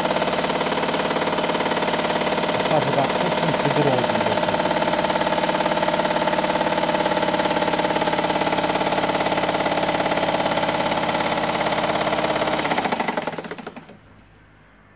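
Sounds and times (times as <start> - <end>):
sewing machine running: 0.0 - 14.0.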